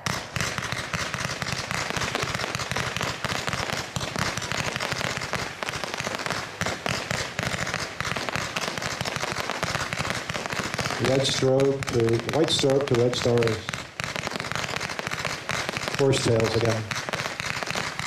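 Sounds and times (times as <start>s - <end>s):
fireworks launch pops and bursts: 0.0s - 18.0s.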